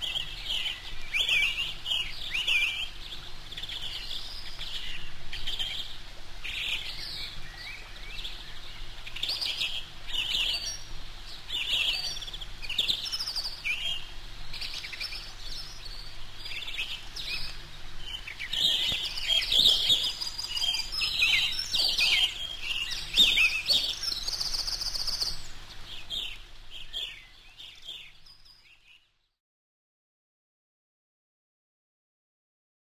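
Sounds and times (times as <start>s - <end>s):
bird chicks peeping: 11.5s - 28.4s.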